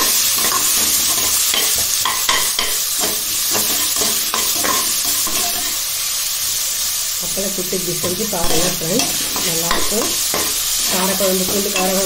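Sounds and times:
ladle scraping and tapping pan: 0.0s - 5.8s
onions sizzling in oil: 0.0s - 12.0s.

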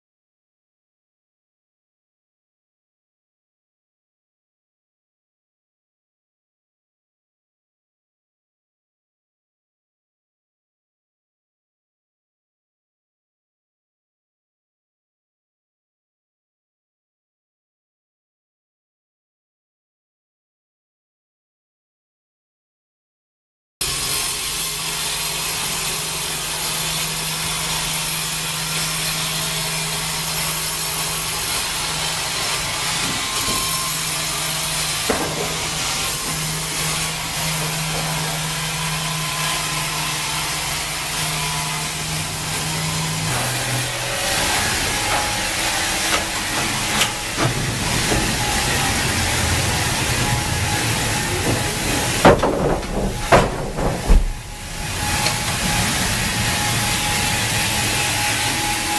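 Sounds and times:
band saw cutting through log: 23.8s - 58.9s
sharp knocks: 35.0s - 38.3s, 51.3s - 55.7s.

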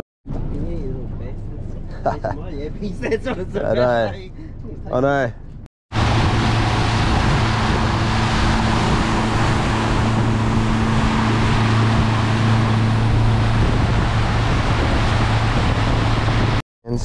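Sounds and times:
boat motor droning: 5.9s - 16.6s
water rushing past hull: 5.9s - 16.6s
wind on microphone: 5.9s - 17.0s.

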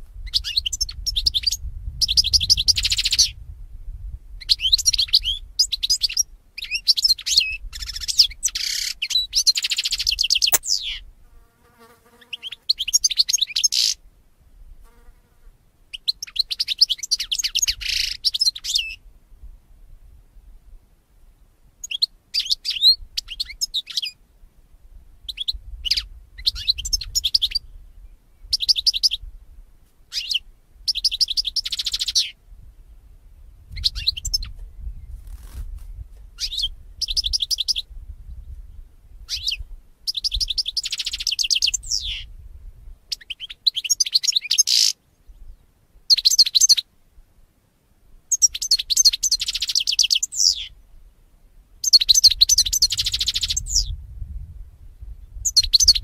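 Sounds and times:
goldfinch twittering and trilling: 51.8s - 53.9s.

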